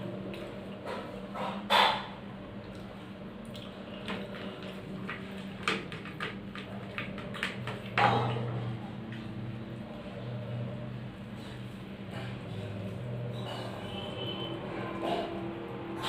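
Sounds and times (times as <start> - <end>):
wet chewing and lip smacks: 2.6 - 4.3.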